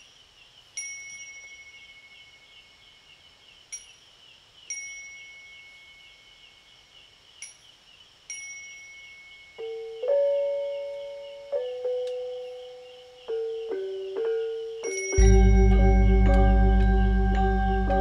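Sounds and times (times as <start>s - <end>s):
insects trilling: 0.0s - 15.3s
small high-pitched bell strikes: 0.8s - 2.1s, 14.8s - 18.0s
gamelan metallophones ringing: 13.4s - 18.0s.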